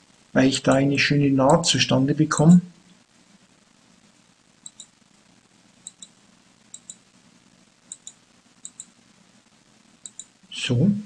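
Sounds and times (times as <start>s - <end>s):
computer mouse button clicking: 7.9s - 8.9s, 10.0s - 10.3s.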